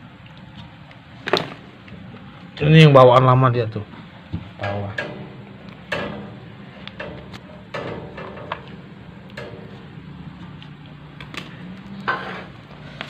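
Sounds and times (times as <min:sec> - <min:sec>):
steady low hum: 0:00.0 - 0:13.0
tools and metal tubing clicking: 0:04.6 - 0:09.9.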